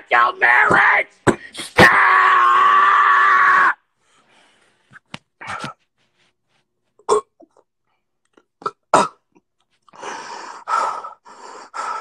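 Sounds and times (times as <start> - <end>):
person clearing throat: 8.6 - 9.4
heavy breathy exhalations: 9.9 - 12.0.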